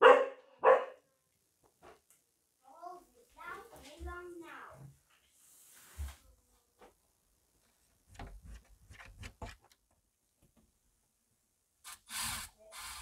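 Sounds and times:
light clicks and knocks: 0:07.7 - 0:10.7.

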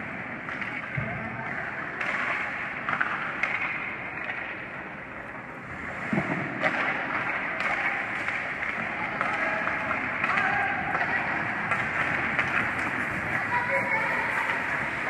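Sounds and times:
hockey sticks and puck clacking: 0:00.3 - 0:05.4, 0:06.1 - 0:15.0
skate blades scraping on ice: 0:11.0 - 0:15.0.

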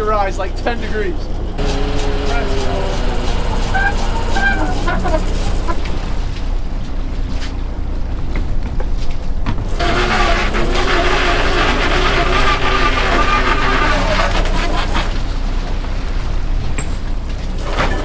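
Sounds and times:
boat engine running: 0:00.0 - 0:18.0
trap hauler pulling: 0:01.6 - 0:06.9, 0:09.6 - 0:15.3.

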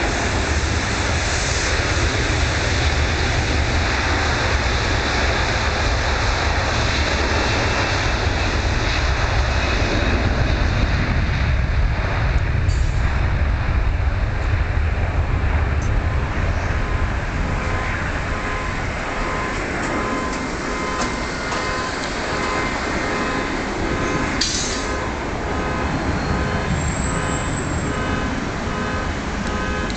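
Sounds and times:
jet engines roaring at takeoff: 0:00.0 - 0:29.9
faint car alarm beeping: 0:15.8 - 0:29.9.

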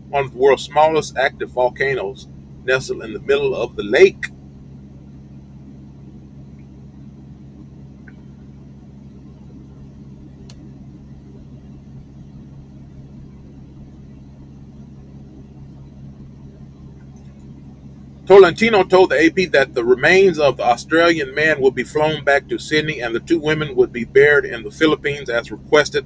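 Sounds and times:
low background hum: 0:00.0 - 0:26.0
faint click: 0:10.4 - 0:10.6.

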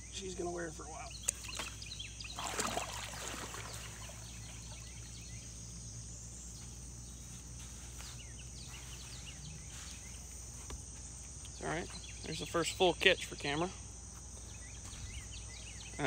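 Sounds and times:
birds chirping: 0:00.0 - 0:16.0
high insect drone: 0:00.0 - 0:16.0
turtle splashing into water: 0:01.2 - 0:05.0.

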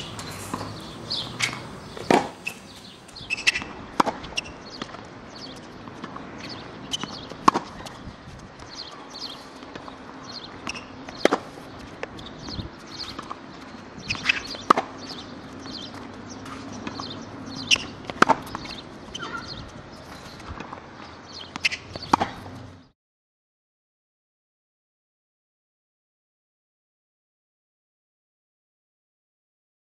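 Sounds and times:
racket hitting tennis ball: 0:00.0 - 0:08.0, 0:08.8 - 0:22.6
tennis ball bouncing: 0:00.0 - 0:08.0, 0:08.6 - 0:22.6.

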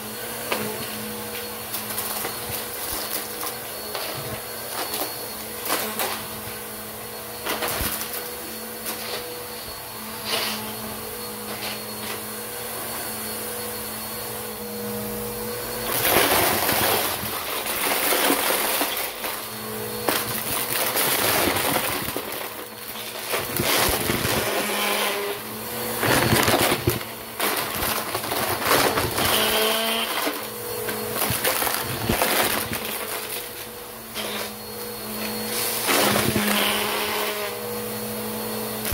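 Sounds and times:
vacuum cleaner motor hum: 0:00.0 - 0:38.9
objects rattling through vacuum nozzle: 0:15.4 - 0:37.5.

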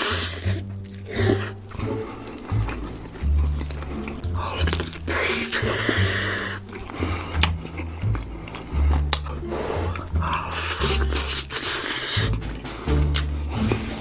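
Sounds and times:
background music with bass line: 0:00.0 - 0:14.0
man chewing and smacking: 0:00.0 - 0:14.0
rasping noise: 0:00.0 - 0:14.0
wet clicks: 0:00.6 - 0:11.6.

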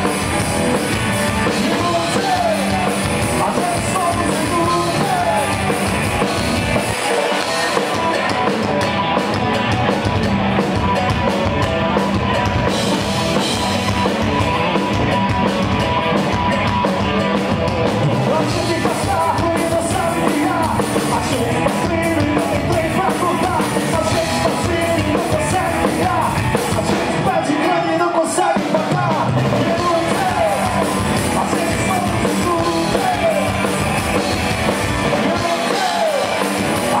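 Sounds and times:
lead vocalist singing: 0:00.0 - 0:08.3, 0:17.9 - 0:37.0
rock band playing: 0:00.0 - 0:37.0.

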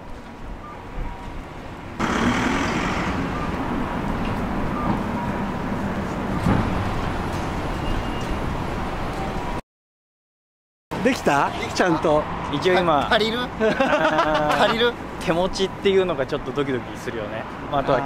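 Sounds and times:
street traffic: 0:00.0 - 0:09.6, 0:10.9 - 0:18.0.

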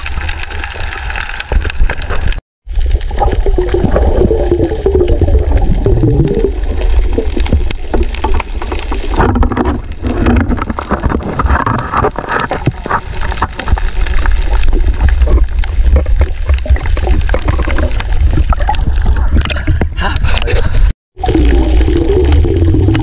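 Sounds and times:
crackling clicks underwater: 0:00.0 - 0:20.5
water gurgling: 0:00.0 - 0:20.6, 0:21.2 - 0:23.0
low underwater rumble: 0:21.2 - 0:23.0.

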